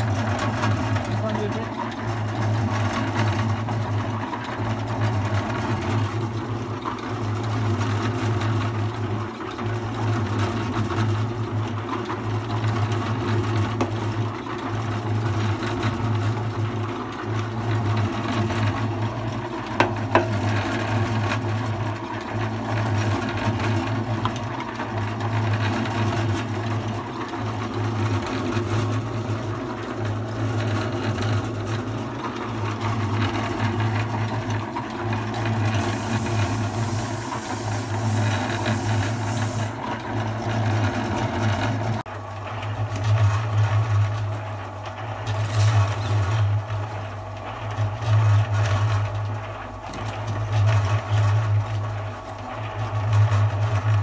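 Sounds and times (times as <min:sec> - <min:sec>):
electric concrete mixer running: 0:00.0 - 0:54.0.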